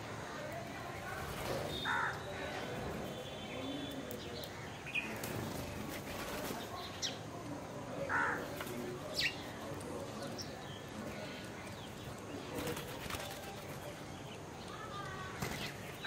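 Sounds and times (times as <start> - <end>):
wings fluttering: 5.0 - 6.9, 12.0 - 14.2.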